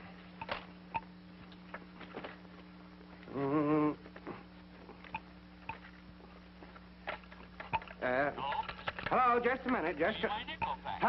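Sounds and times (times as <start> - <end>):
steady low hum: 0.0 - 11.0
person moaning: 3.3 - 4.0.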